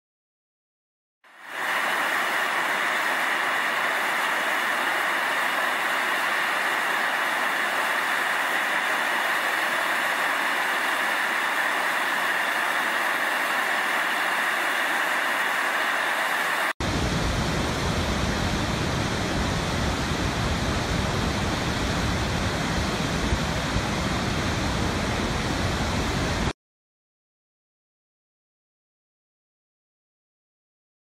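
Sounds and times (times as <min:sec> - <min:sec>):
steam hissing from a vent: 0:01.3 - 0:26.5.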